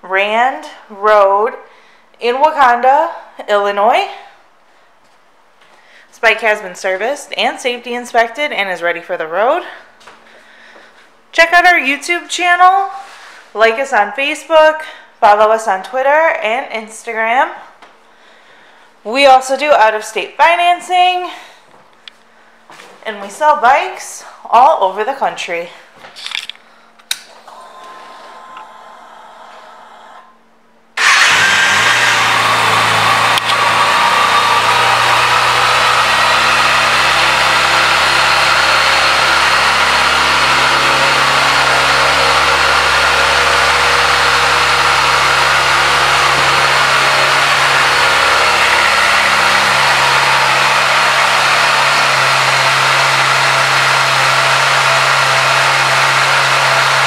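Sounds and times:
motorcycle engine starting and idling: 31.0 - 54.9.

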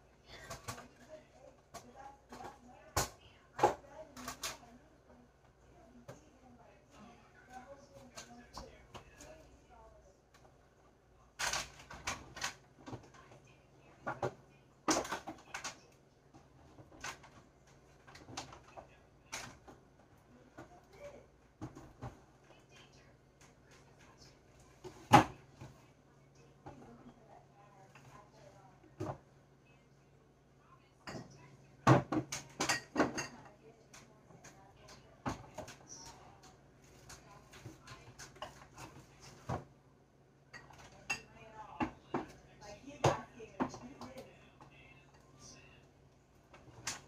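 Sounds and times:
groceries knocking on shelves: 31.8 - 33.3.

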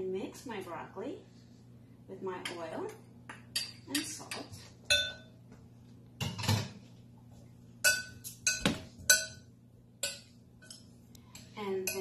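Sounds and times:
utensil clinking against glass bowl: 3.5 - 5.3, 7.8 - 12.0.

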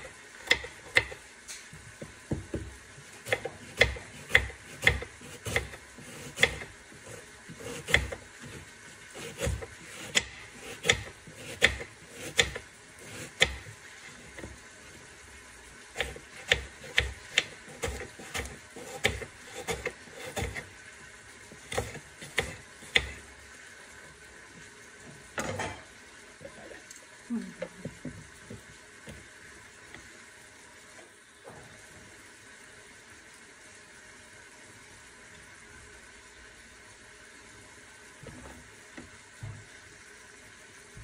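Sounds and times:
knife chopping on wooden board: 0.4 - 1.2, 2.0 - 6.6, 7.6 - 8.6, 9.2 - 13.7, 16.0 - 20.6, 21.7 - 23.2.

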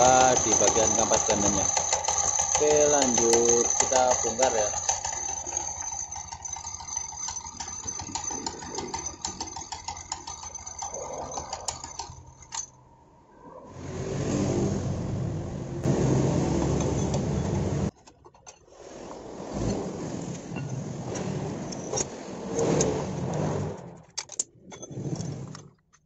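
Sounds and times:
scooter engine running: 0.0 - 12.4, 13.8 - 17.9
metallic jingling rattle: 0.0 - 12.8.

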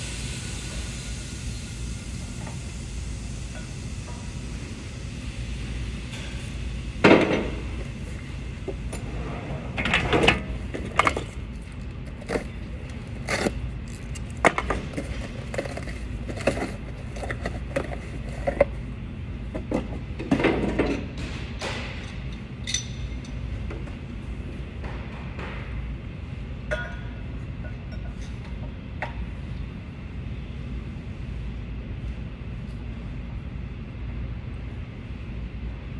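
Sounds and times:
metal tools clinking and knocking: 22.6 - 23.4.

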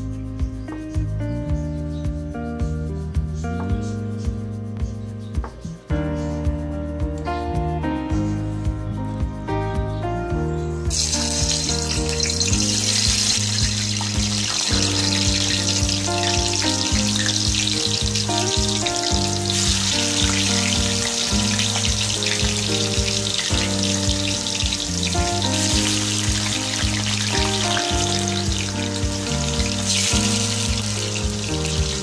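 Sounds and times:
background music: 0.0 - 32.0
tofu sizzling in hot oil: 10.9 - 32.0.

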